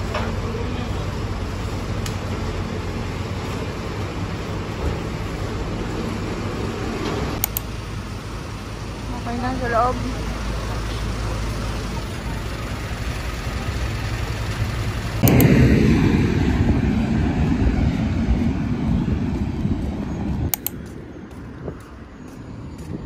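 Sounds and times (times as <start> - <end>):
street traffic rumble: 0.0 - 23.0
wind buffeting microphone: 15.2 - 23.0.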